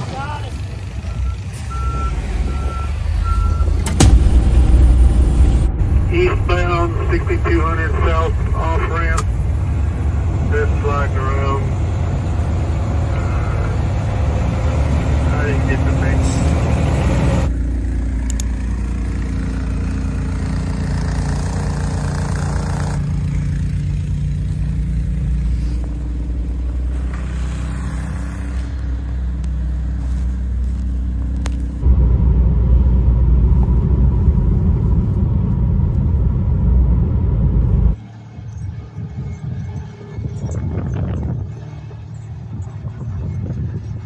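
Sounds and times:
road noise: 0.0s - 44.0s
vehicle engine rumble: 0.0s - 44.0s.

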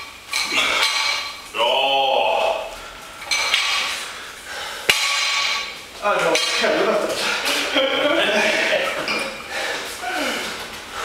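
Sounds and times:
barbell plates clanking: 0.0s - 1.5s, 2.4s - 4.2s, 4.8s - 9.5s
person grunting: 1.6s - 2.8s, 10.0s - 10.6s.

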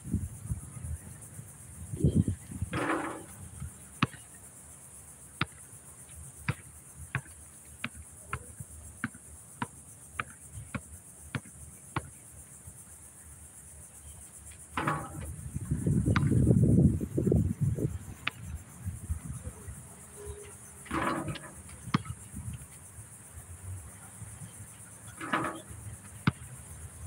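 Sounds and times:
insects buzzing: 0.0s - 27.0s
ball rattling on hoop: 2.6s - 4.2s, 14.8s - 16.5s, 20.6s - 22.3s, 25.1s - 26.4s
basketball bouncing on concrete: 14.8s - 16.5s, 20.9s - 22.2s, 25.2s - 26.4s.

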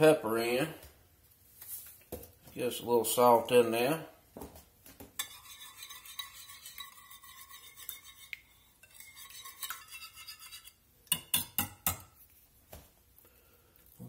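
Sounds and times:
whisk beating in glass dish: 5.2s - 12.0s.

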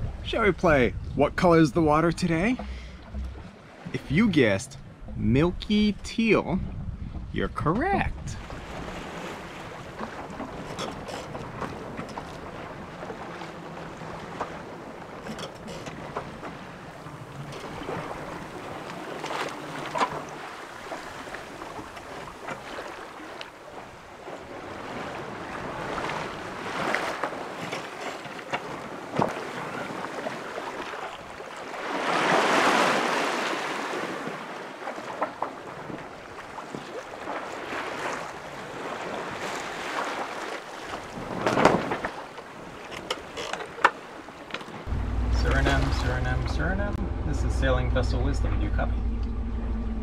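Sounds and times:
wind on microphone: 0.0s - 4.0s, 4.7s - 10.7s
water washing along hull: 0.0s - 50.0s.

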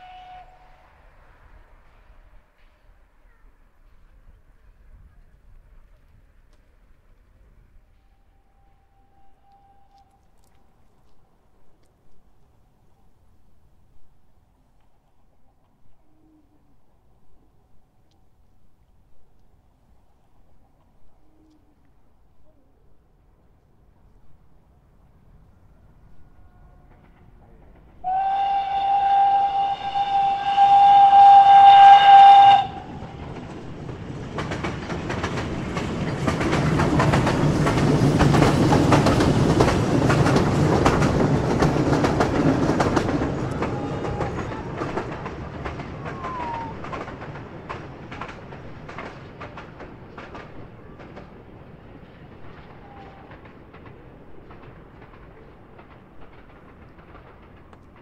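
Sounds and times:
train whistle: 0.0s - 1.4s, 8.0s - 10.3s, 28.0s - 33.4s, 43.4s - 45.1s, 46.0s - 47.0s
train wheels clattering over rails: 26.6s - 58.0s.

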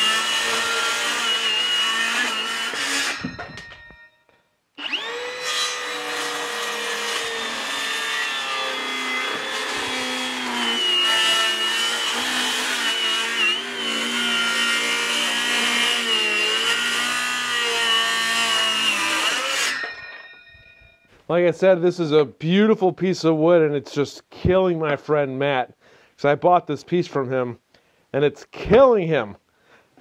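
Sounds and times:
circular saw cutting wood: 0.0s - 3.8s, 4.8s - 20.4s.

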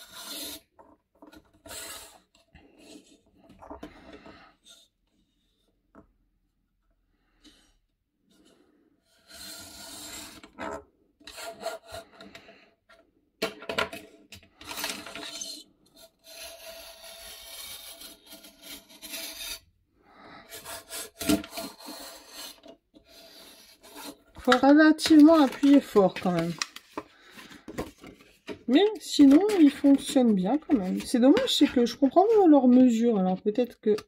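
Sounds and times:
blade rasping through thick paper: 16.0s - 19.7s, 20.5s - 24.2s.

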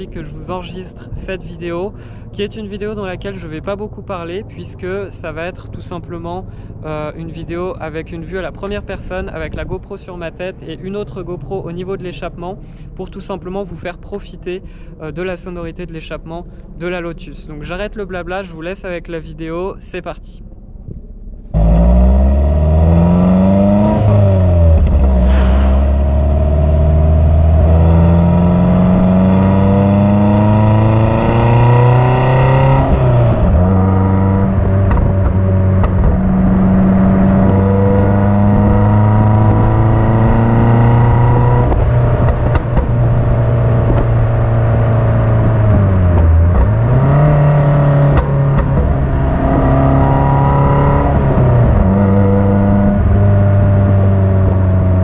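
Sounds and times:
car engine exhaust: 0.8s - 9.6s, 20.4s - 55.0s.

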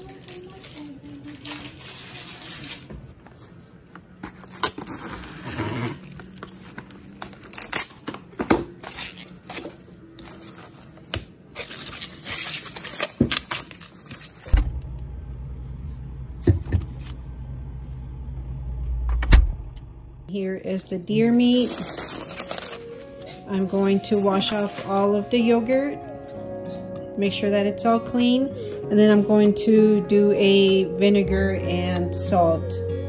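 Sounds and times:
cling wrap tearing and crinkling: 0.0s - 14.6s, 21.4s - 25.4s
low steady hum: 13.4s - 33.0s.

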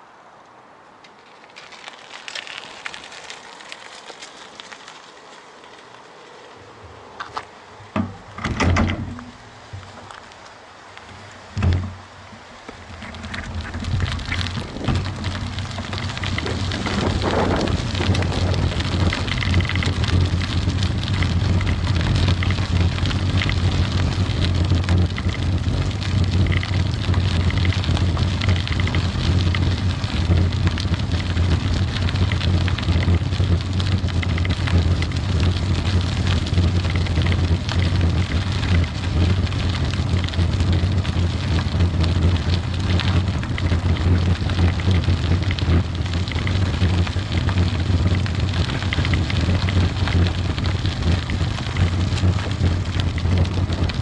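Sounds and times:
tyre and road rumble: 0.0s - 54.0s
wind buffeting microphone: 11.4s - 54.0s.

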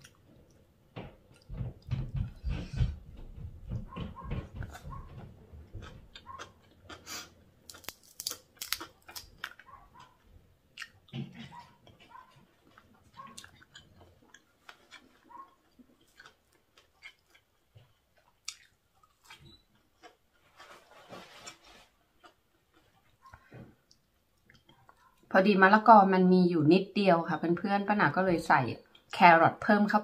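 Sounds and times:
chewing crispy food: 5.7s - 25.3s.

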